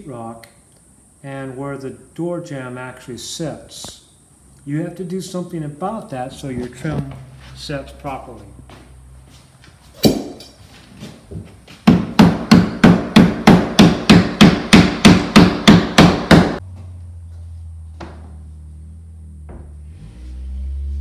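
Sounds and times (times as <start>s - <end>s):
hammer striking drywall: 11.8s - 16.6s
low steady hum: 12.6s - 21.0s.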